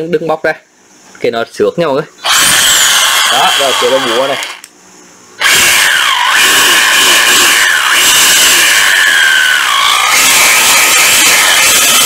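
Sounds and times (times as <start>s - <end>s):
cordless hammer drill rattling: 2.2s - 4.6s, 5.4s - 12.0s.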